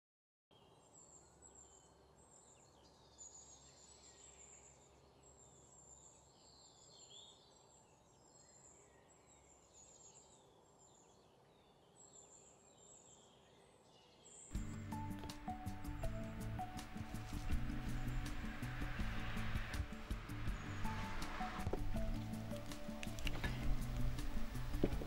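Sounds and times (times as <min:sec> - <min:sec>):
birds chirping: 0:00.5 - 0:25.0
steady outdoor hiss: 0:00.6 - 0:25.0.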